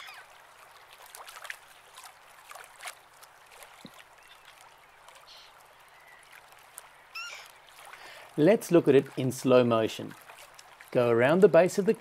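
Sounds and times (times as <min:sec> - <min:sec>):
water lapping against a boat: 0:00.0 - 0:12.0.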